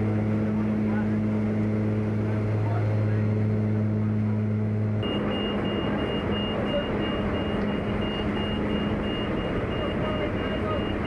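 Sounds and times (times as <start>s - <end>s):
plane engines droning: 0.0s - 11.0s
high beep: 5.0s - 11.0s.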